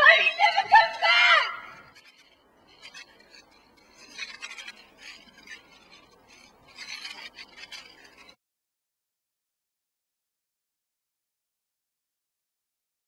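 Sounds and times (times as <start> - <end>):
toy car wheels rolling on bricks: 0.0 - 8.4.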